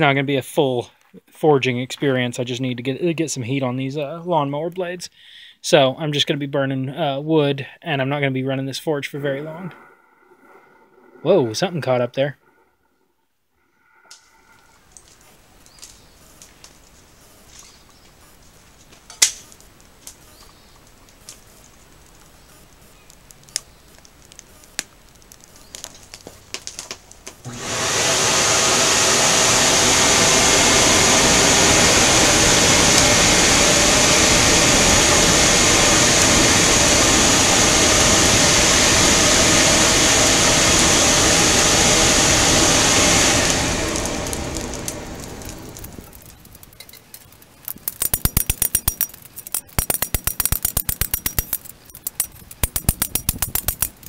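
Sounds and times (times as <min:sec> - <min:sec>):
air blower rushing with whine: 0:27.1 - 0:46.3.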